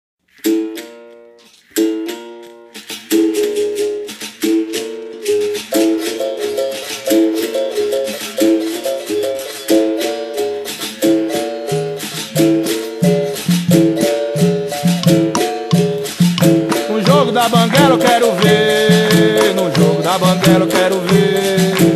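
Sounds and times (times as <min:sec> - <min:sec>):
berimbau rhythm: 0:00.2 - 0:21.9
low-pitched berimbau: 0:11.0 - 0:21.9.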